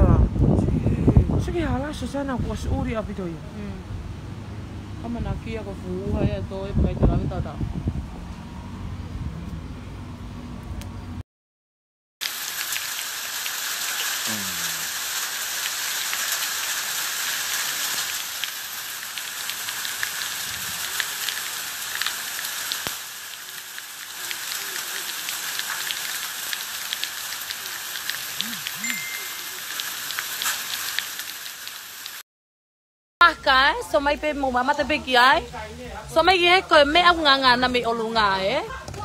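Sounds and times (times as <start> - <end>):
volcanic ash pattering on ground: 12.2 - 32.2.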